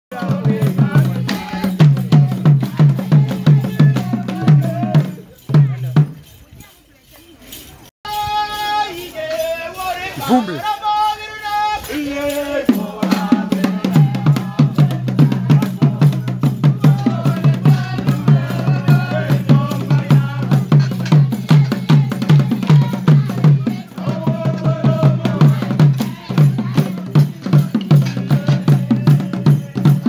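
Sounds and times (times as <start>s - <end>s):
voices singing: 0.1s - 5.8s, 7.2s - 30.0s
fast dance drumming: 0.1s - 6.1s, 12.7s - 30.0s.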